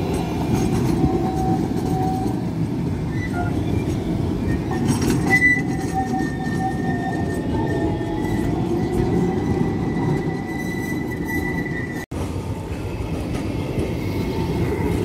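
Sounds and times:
tram rumbling on rails: 0.0 - 15.0
wheels squealing: 0.2 - 12.1.

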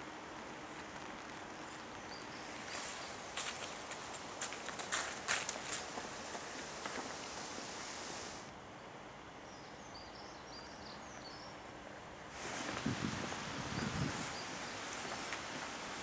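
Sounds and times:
footsteps crunching on dry leaves: 2.4 - 7.8.

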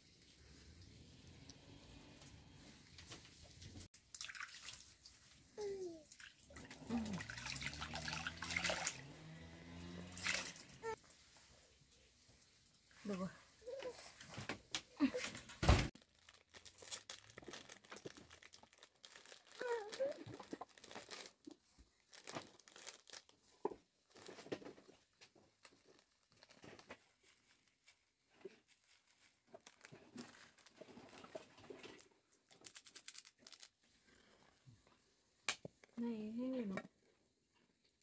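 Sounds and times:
plastic sachet crinkling and tearing: 16.0 - 24.6, 25.6 - 28.0, 28.7 - 33.8.

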